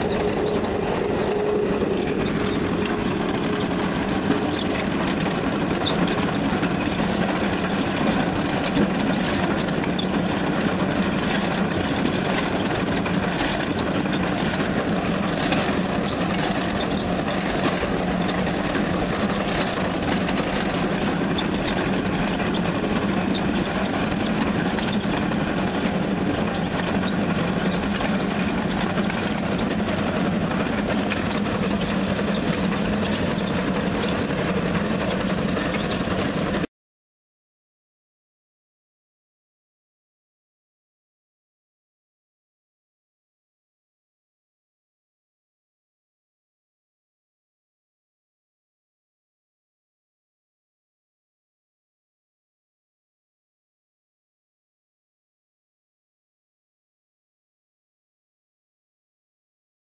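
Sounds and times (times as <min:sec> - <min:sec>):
chain trencher cutting through stone: 0:00.0 - 0:36.7.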